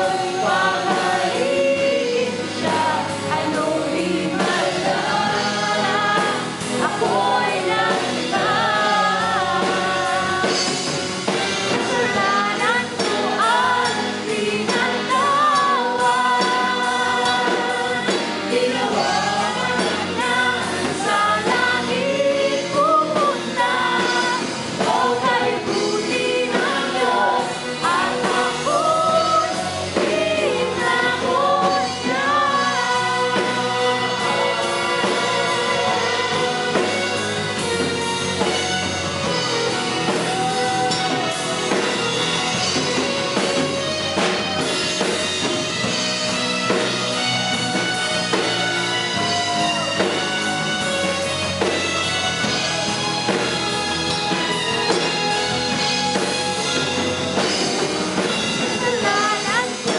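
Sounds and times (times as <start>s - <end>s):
drums: 0.0s - 59.9s
electric guitar: 0.0s - 59.9s
woman singing: 11.8s - 37.0s, 58.8s - 59.9s.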